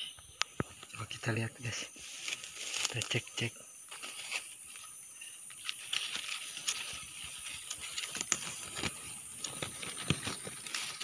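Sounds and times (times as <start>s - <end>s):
shrub leaves rustling: 0.8s - 11.0s
stems snapping clicks: 7.6s - 10.4s.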